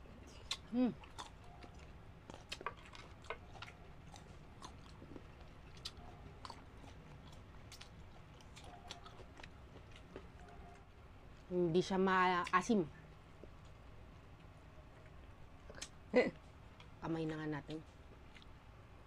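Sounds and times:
close chewing and biting: 0.2 - 10.9.

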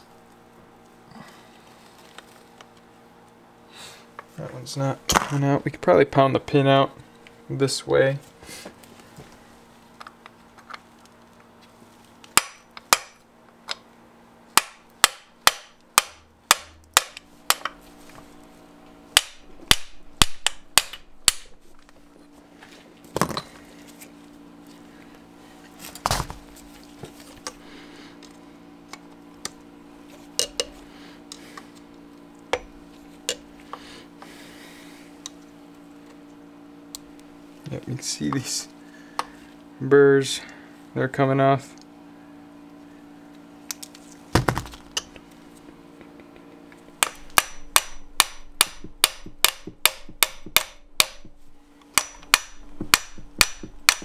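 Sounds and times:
hammer striking metal: 14.6 - 17.7, 47.0 - 51.4, 52.0 - 54.0.

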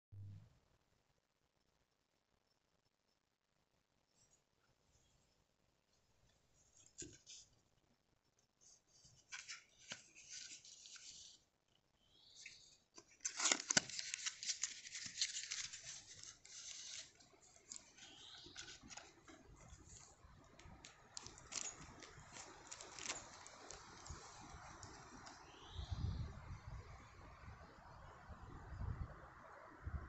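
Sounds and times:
paper box and wrapper rustling: 6.6 - 7.6, 8.6 - 11.5, 12.2 - 25.4.

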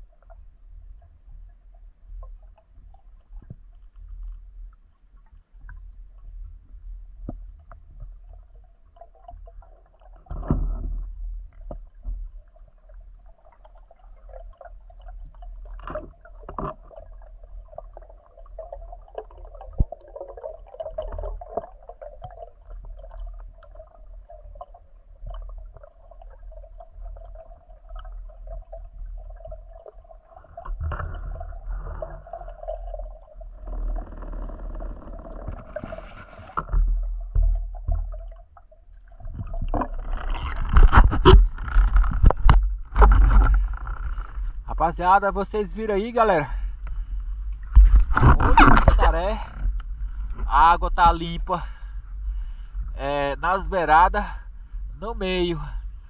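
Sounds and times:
muffled underwater rumble: 0.0 - 56.0
water gurgling: 0.0 - 56.0
underwater clicks: 39.3 - 44.7, 46.8 - 51.2.

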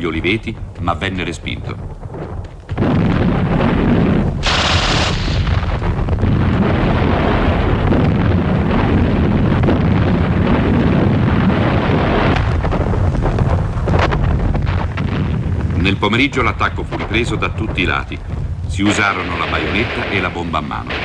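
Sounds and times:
shell explosions: 0.0 - 21.0
gunfire: 2.2 - 12.6, 18.8 - 21.0
hissing burst: 2.7 - 9.4, 18.8 - 21.0.

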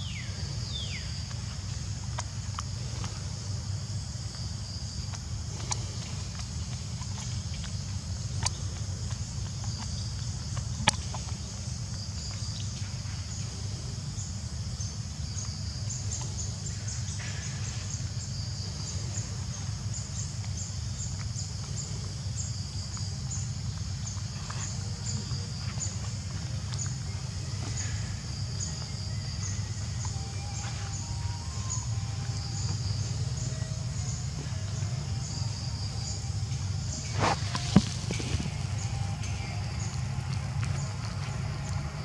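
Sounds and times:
high insect drone: 0.0 - 42.0
low rumble: 15.8 - 42.0.

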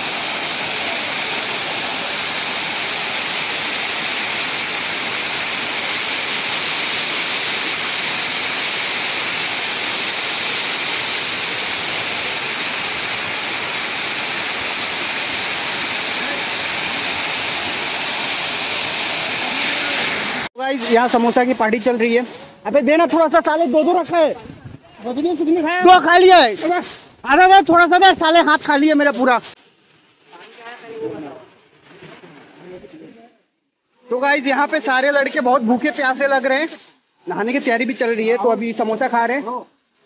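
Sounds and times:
waterfall rushing: 0.0 - 21.4.

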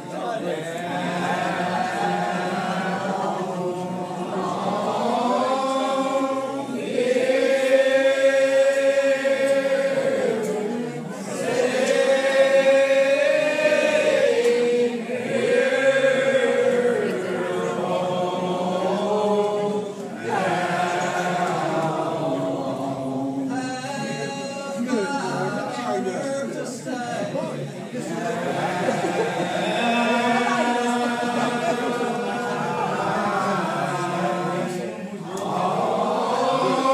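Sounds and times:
congregation singing a hymn: 0.0 - 36.9.

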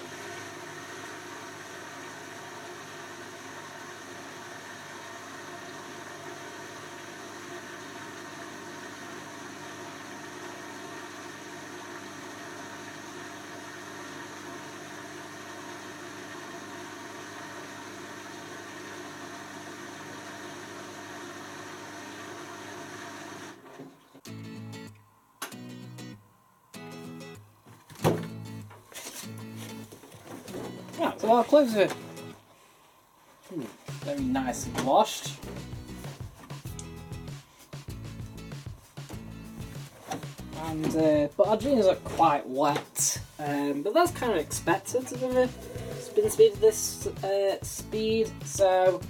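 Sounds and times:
washing machine humming: 27.6 - 36.8, 38.7 - 47.8.

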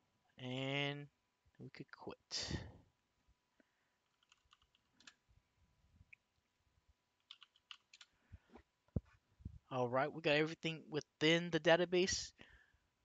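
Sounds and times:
computer keyboard typing: 4.1 - 5.2, 7.2 - 8.1.

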